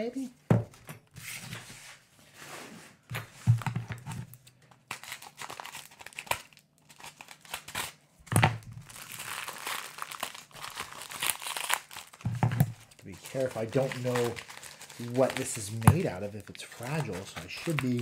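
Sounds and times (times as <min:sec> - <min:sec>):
paper wrapping crinkling and tearing: 0:04.7 - 0:08.0, 0:08.7 - 0:18.0.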